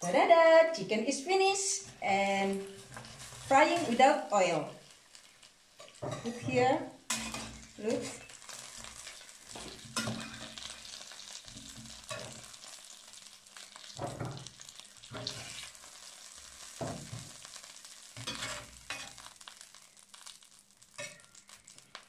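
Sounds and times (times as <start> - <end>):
chicken sizzling in a skillet: 1.7 - 22.0
metal spatula scraping a pan: 1.8 - 4.2, 5.8 - 12.8, 15.1 - 15.9, 18.2 - 19.3.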